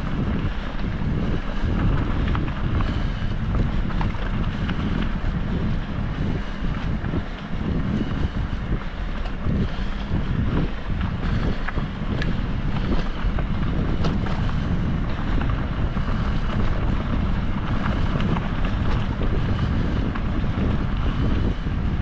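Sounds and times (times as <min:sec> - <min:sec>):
wind buffeting microphone: 0:00.0 - 0:22.0.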